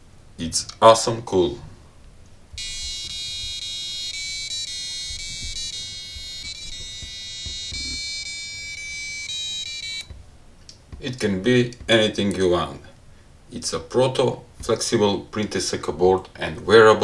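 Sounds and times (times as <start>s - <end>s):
buzzer playing a tune: 2.6s - 10.2s.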